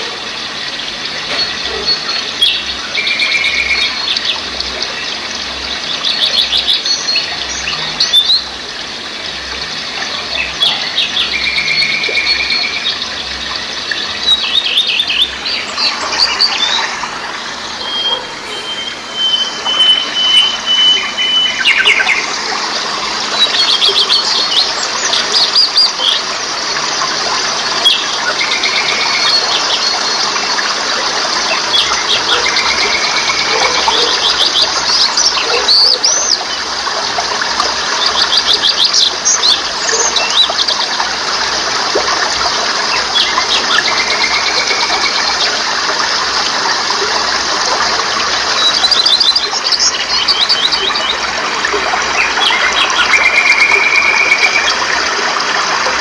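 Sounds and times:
songbirds chirping and trilling: 0.0 - 55.9
water rushing over rocks: 0.0 - 56.0
bird whistles: 17.8 - 22.2.

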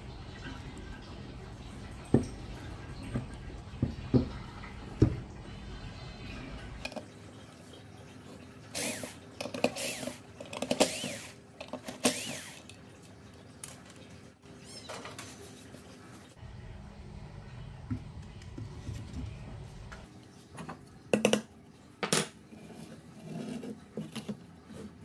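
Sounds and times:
cordless drill motor whining: 8.8 - 10.2, 10.8 - 11.4, 12.0 - 12.7.

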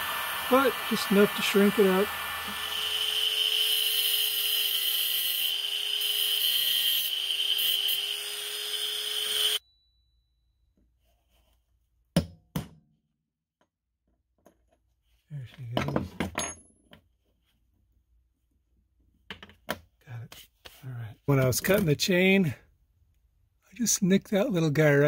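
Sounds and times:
power tool motor whining: 0.0 - 9.6.

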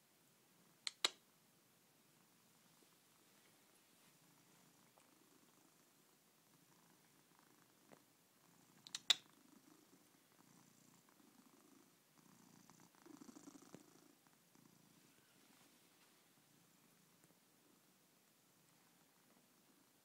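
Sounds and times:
sharp click: 0.8 - 1.2
cat purring: 2.0 - 20.0.

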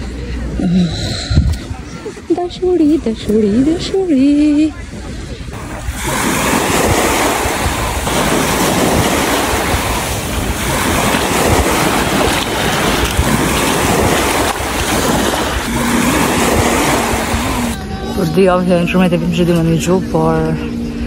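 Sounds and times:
wind buffeting microphone: 0.9 - 19.7
deep rumble: 2.6 - 18.0.

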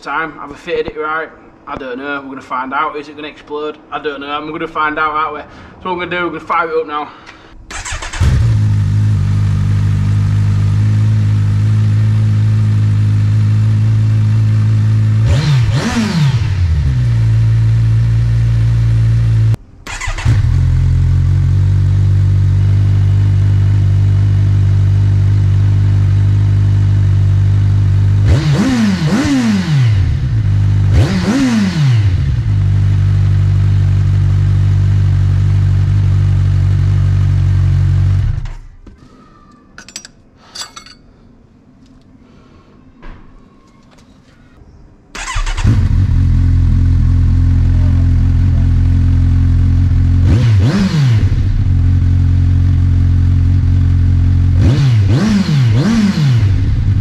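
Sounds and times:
motorcycle engine revving: 7.7 - 38.6, 45.2 - 57.0.

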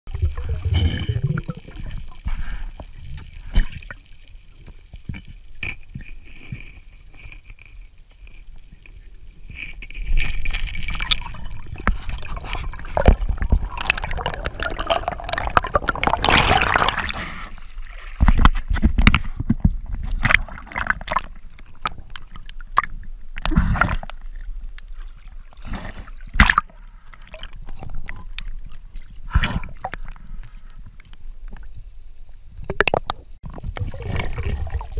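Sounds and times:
rush of bubbling: 0.1 - 4.1, 10.2 - 18.5, 20.0 - 30.6, 32.7 - 34.9
underwater water gurgling: 0.1 - 34.9.

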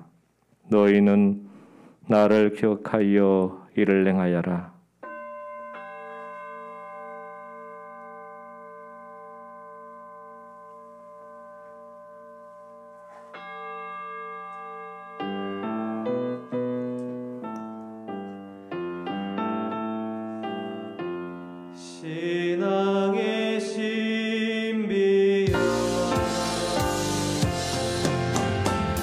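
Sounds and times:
brass bowl bell ringing: 5.0 - 17.8, 25.5 - 29.0
electric keyboard music: 14.5 - 21.9, 25.5 - 29.0.

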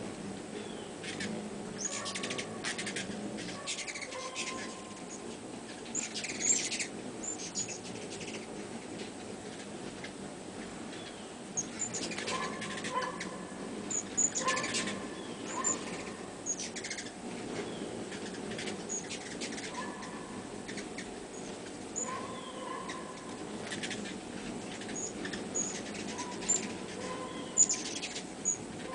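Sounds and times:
hummingbird wings whirring: 0.0 - 28.9
quick chattering bird calls: 1.0 - 4.9
hummingbird chip notes: 10.9 - 17.2, 17.8 - 28.9.

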